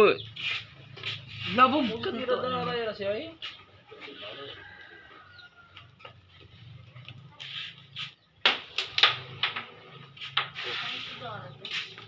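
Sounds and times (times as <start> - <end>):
pool balls clacking: 8.4 - 10.6.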